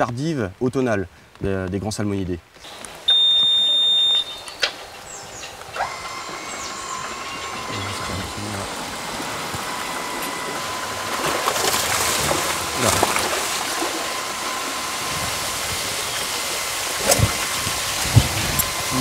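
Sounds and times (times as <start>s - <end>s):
river water rushing: 2.6s - 19.0s.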